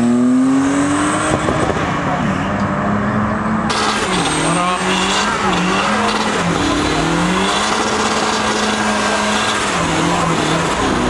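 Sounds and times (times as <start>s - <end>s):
car engine revving high: 0.0s - 11.0s
tyres squealing on asphalt: 3.6s - 11.0s.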